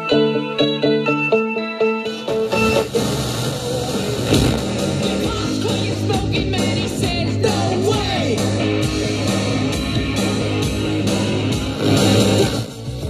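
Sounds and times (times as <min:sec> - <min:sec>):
rock song with singing: 0:02.2 - 0:12.5.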